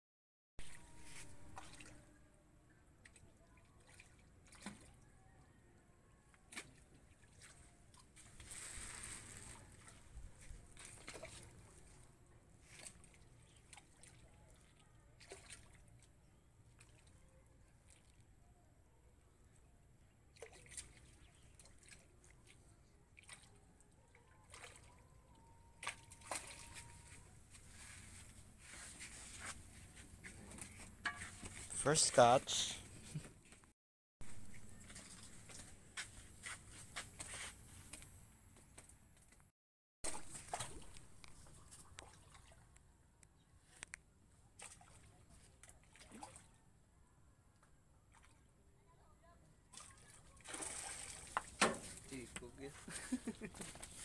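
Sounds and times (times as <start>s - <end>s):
fish splashing in water: 25.8s - 27.2s, 40.1s - 42.7s, 49.7s - 52.0s.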